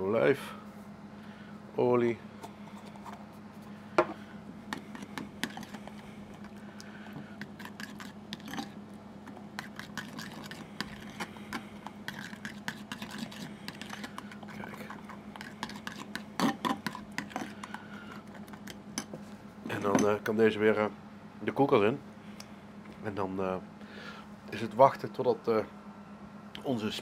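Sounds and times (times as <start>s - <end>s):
metal spoon scraping ceramic bowl: 7.5s - 8.8s, 9.6s - 11.3s, 12.1s - 17.6s.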